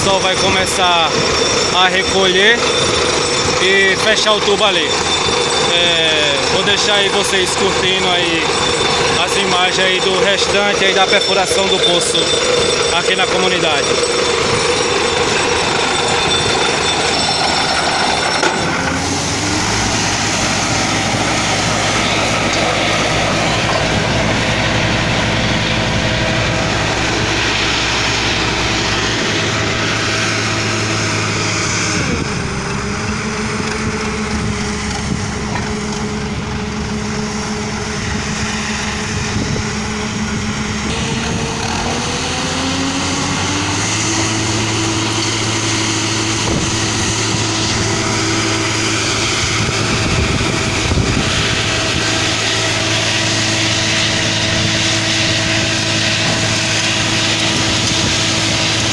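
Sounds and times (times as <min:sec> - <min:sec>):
drilling rig engine running: 0:00.0 - 0:58.9.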